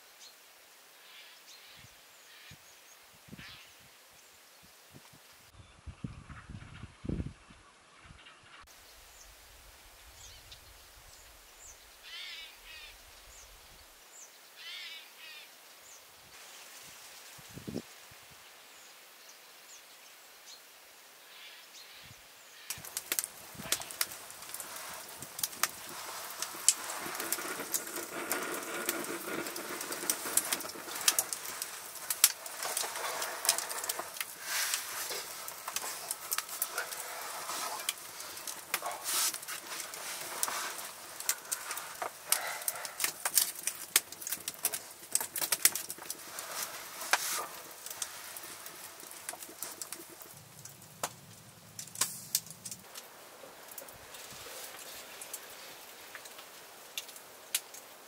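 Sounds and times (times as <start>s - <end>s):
wood fire crackling: 22.6s - 58.0s.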